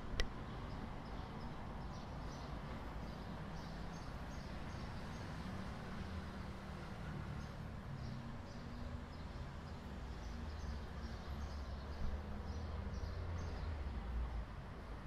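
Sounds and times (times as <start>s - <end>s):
small birds chirping: 0.6s - 5.5s, 7.4s - 13.8s.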